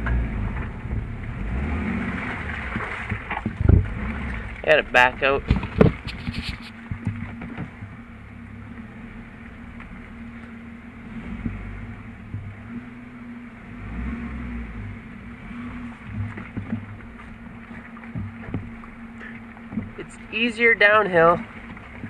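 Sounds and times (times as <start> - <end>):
car engine rumbling: 0.0 - 22.0.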